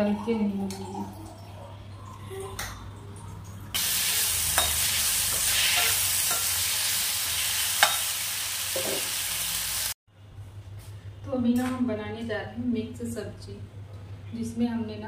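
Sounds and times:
vegetables sizzling in hot oil: 0:03.8 - 0:10.0.

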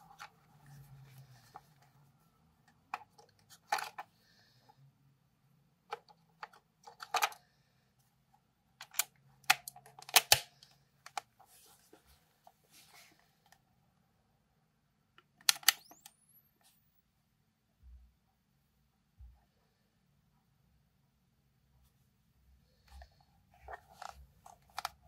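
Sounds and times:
plastic camera clicks and snaps: 0:08.8 - 0:10.5, 0:15.4 - 0:16.2.

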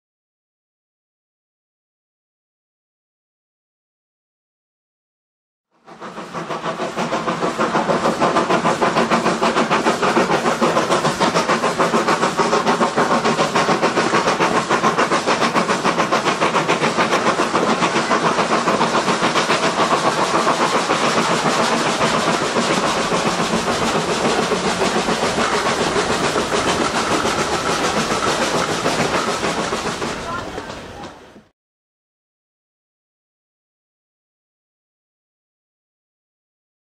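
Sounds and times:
steam locomotive exhaust beats: 0:05.8 - 0:31.5.

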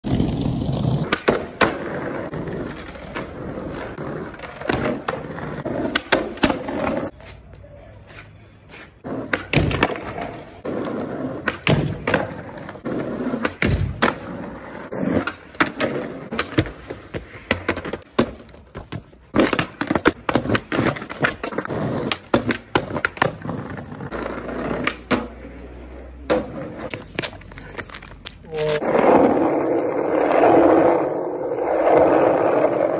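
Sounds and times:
skateboard rolling over pavement: 0:00.0 - 0:07.1, 0:09.0 - 0:32.9
skateboard clacks: 0:00.1 - 0:07.1, 0:09.0 - 0:25.6.

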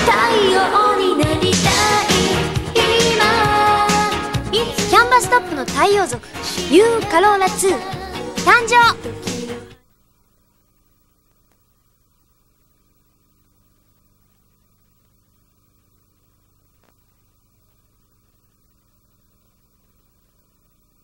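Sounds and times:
faint electrical hum: 0:00.0 - 0:21.0
light hiss: 0:09.2 - 0:21.0
faint clicks: 0:16.7 - 0:17.8.

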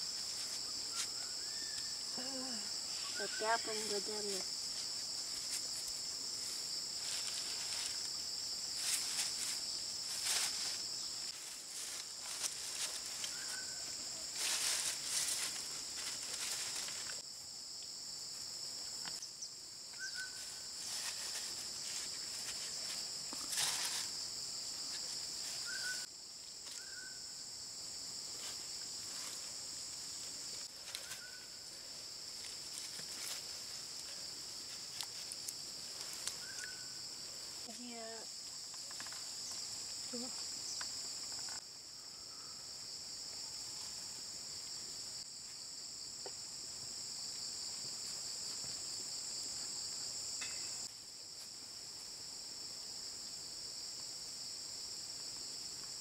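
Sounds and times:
rustles: 0:00.0 - 0:41.7
insects droning: 0:00.0 - 0:56.0.

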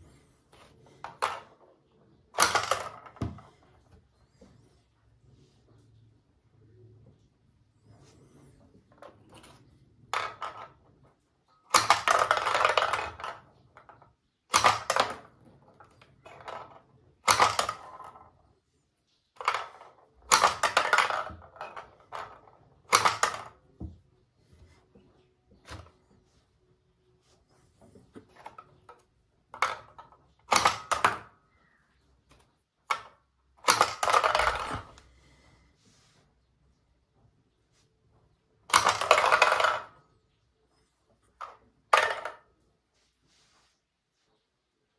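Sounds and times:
small balls clattering on plastic: 0:00.0 - 0:04.4, 0:08.2 - 0:24.1, 0:28.0 - 0:35.3, 0:38.6 - 0:40.3, 0:41.3 - 0:42.7
toy launcher snapping: 0:14.5 - 0:15.2, 0:30.5 - 0:31.2.

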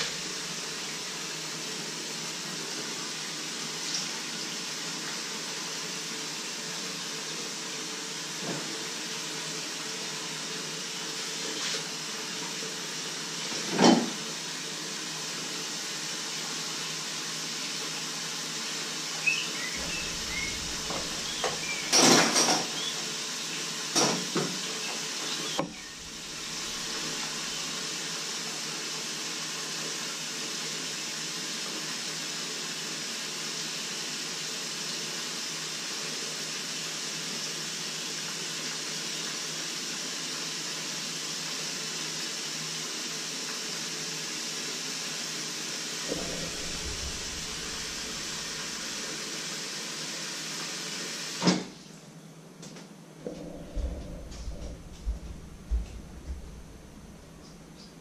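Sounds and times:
steady hiss: 0:00.0 - 0:13.6, 0:14.2 - 0:30.2, 0:45.5 - 0:51.5
dishes and pans clattering: 0:13.5 - 0:14.2, 0:19.8 - 0:22.9.

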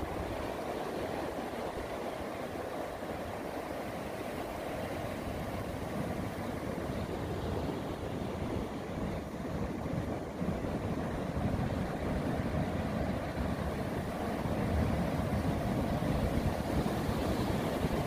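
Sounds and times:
ocean surf: 0:00.0 - 0:18.0
wind rumbling on microphone: 0:04.8 - 0:18.0.

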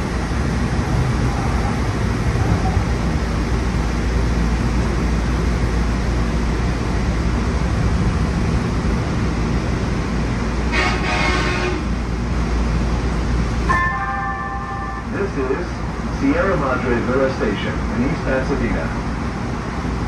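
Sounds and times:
train wheels rumbling on rail: 0:00.0 - 0:20.0
brief high-pitched tone: 0:13.7 - 0:15.1.

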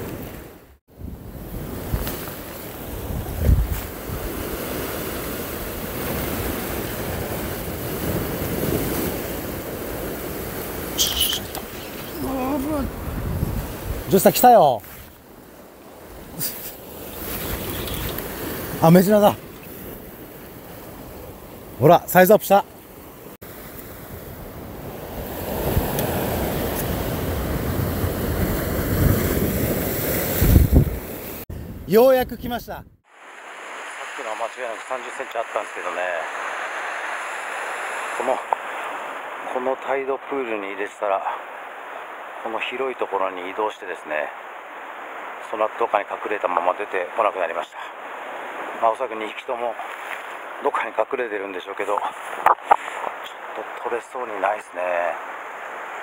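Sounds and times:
waves breaking on rocky shore: 0:00.0 - 0:31.5, 0:33.1 - 0:56.0
wind buffeting microphone: 0:02.9 - 0:14.2, 0:24.0 - 0:33.0.

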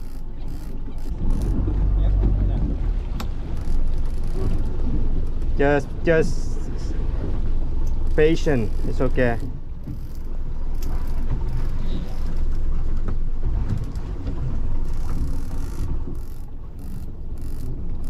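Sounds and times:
fishing reel clicking: 0:00.0 - 0:01.6, 0:03.6 - 0:04.7, 0:07.8 - 0:12.4, 0:14.8 - 0:18.0
wind on microphone: 0:00.0 - 0:05.3
boat motor at low speed: 0:00.0 - 0:18.0.

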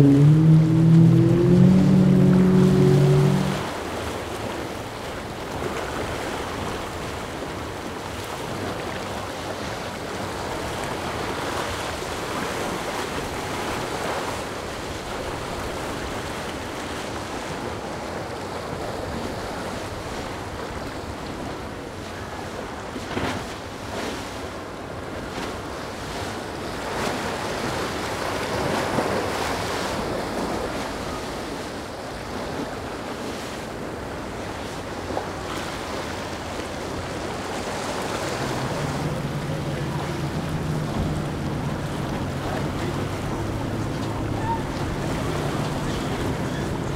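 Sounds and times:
waves and boat spray rushing: 0:00.0 - 0:46.9
wind buffeting microphone: 0:36.8 - 0:46.9.

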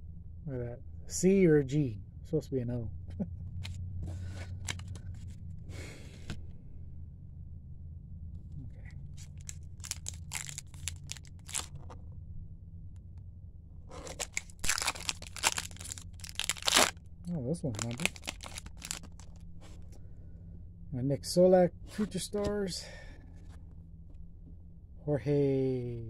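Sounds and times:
cards clicking and rustling: 0:03.6 - 0:05.4, 0:09.1 - 0:12.0, 0:13.9 - 0:17.0, 0:17.8 - 0:19.9
foil wrapper tearing and crinkling: 0:04.6 - 0:05.0, 0:09.2 - 0:11.8, 0:13.9 - 0:17.0, 0:17.7 - 0:19.4.

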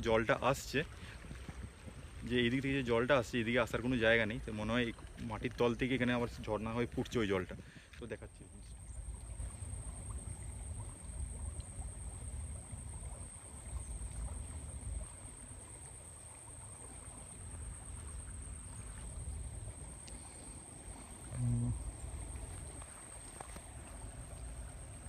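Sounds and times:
faint water welling: 0:00.0 - 0:25.0
low rumble on microphone: 0:00.0 - 0:25.0
brief low hum: 0:21.0 - 0:22.9.

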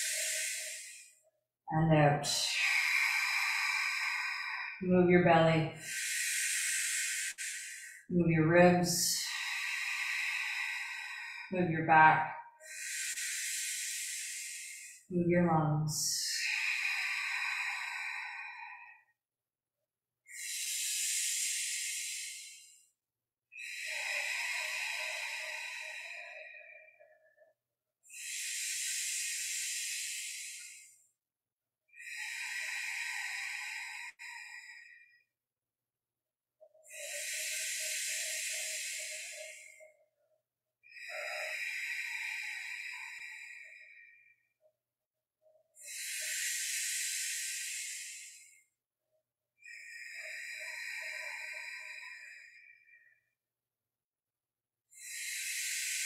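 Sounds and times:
deep breaths through the mouth: 0:00.0 - 0:01.2, 0:02.4 - 0:04.8, 0:05.8 - 0:08.1, 0:09.1 - 0:15.1, 0:16.2 - 0:19.2, 0:20.3 - 0:22.8, 0:23.6 - 0:27.4, 0:28.1 - 0:31.0, 0:32.0 - 0:35.2, 0:36.8 - 0:40.0, 0:40.9 - 0:44.1, 0:45.8 - 0:48.8, 0:49.6 - 0:52.9, 0:54.9 - 0:56.0.

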